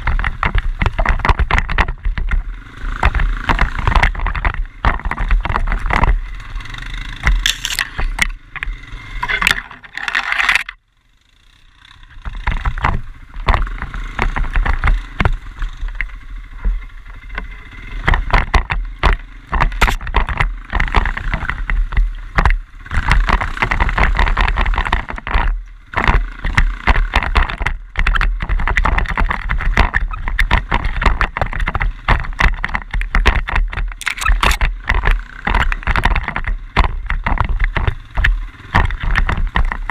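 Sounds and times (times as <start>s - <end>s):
quad bike engine: 0.0s - 39.9s
wind noise on microphone: 18.1s - 39.9s.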